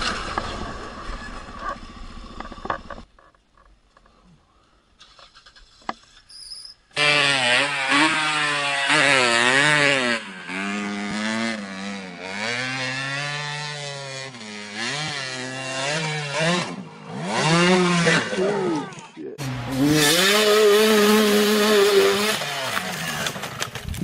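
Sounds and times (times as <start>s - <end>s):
dirt bike engine revving: 7.0s - 24.0s.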